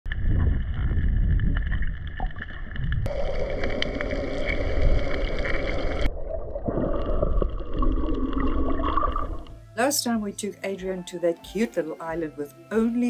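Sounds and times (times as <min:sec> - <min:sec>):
muffled underwater rumble: 0:00.1 - 0:09.6.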